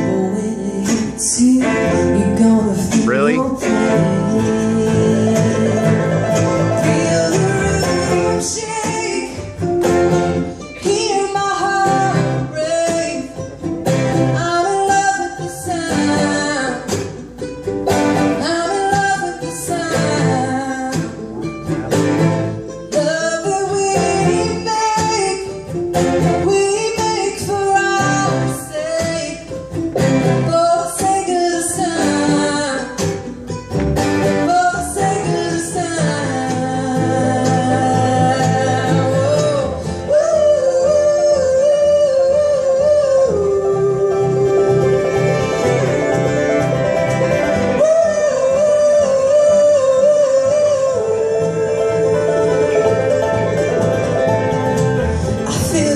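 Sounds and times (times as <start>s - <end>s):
woman singing: 0.0s - 17.5s, 18.1s - 21.6s, 22.5s - 33.6s, 34.2s - 55.9s
picked banjo: 0.0s - 55.9s
strummed acoustic guitars: 0.0s - 55.9s
upright bass: 1.7s - 8.6s, 20.1s - 22.8s, 33.6s - 40.0s, 42.6s - 49.2s, 50.9s - 55.9s.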